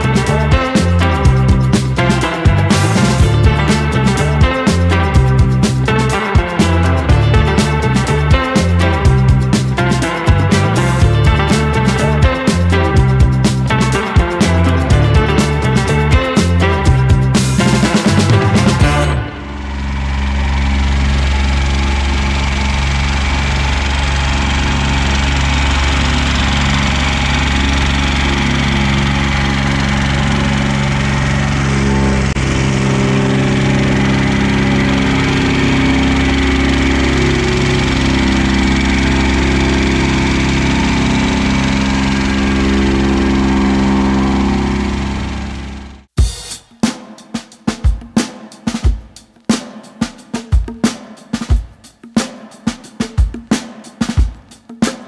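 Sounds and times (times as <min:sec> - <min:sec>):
excavator diesel engine: 0:00.0 - 0:46.1
plate compactor pounding gravel: 0:18.3 - 0:46.0.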